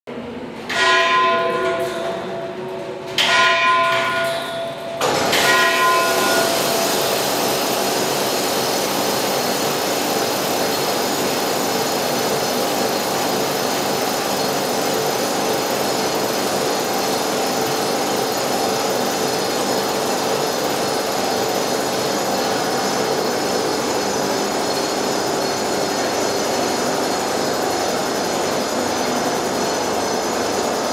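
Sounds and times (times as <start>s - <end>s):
loud steady mechanical noise: 0.1s - 30.9s
tower clock bell strokes: 0.7s - 2.6s, 3.2s - 7.0s.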